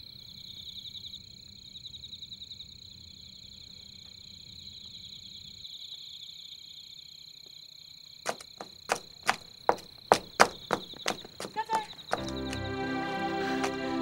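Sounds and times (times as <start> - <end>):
crickets chirring: 0.0 - 13.9
sharp clicks or knocks: 8.3 - 12.7.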